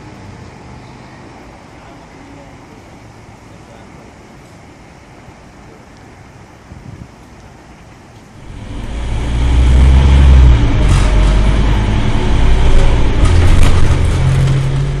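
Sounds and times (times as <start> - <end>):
bus engine droning: 8.2 - 15.0.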